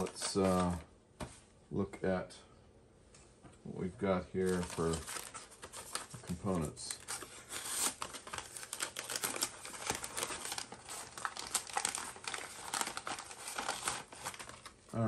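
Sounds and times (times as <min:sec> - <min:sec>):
plastic bag crinkling: 0:00.0 - 0:00.8, 0:04.4 - 0:15.0
bag tearing: 0:07.0 - 0:14.7.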